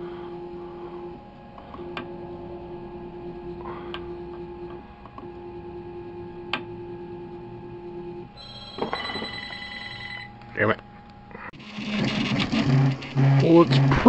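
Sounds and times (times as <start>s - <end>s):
printer stepper motors whining: 0.0s - 10.6s, 11.5s - 14.0s
high-pitched ringing tone: 2.1s - 10.4s.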